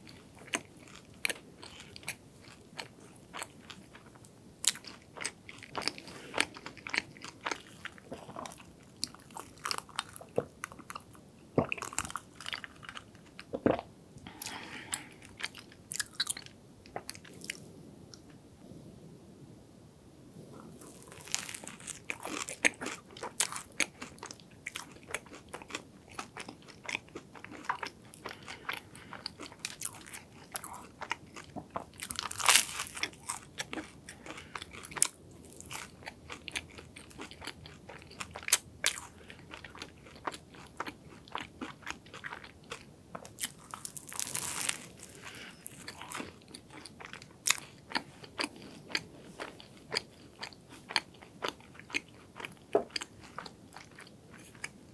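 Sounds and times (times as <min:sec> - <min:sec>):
crunchy chewing: 0:00.0 - 0:17.7, 0:20.8 - 0:54.9.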